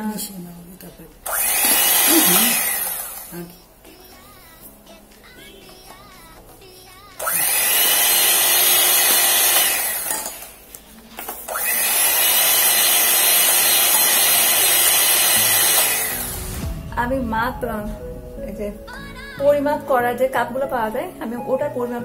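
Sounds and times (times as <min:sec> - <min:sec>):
electric hand mixer whisking batter: 0:01.3 - 0:03.5, 0:07.2 - 0:10.6, 0:11.5 - 0:16.4.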